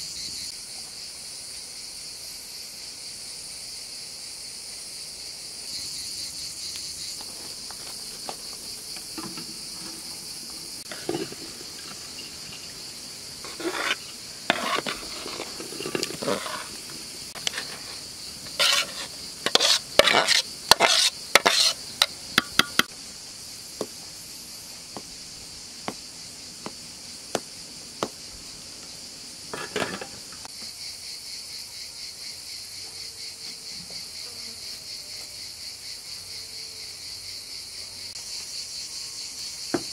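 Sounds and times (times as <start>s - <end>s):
crickets and insects chirring: 0.0s - 39.9s
metal utensil scraping cooking pot: 10.9s - 12.7s, 13.4s - 22.9s, 29.5s - 30.2s.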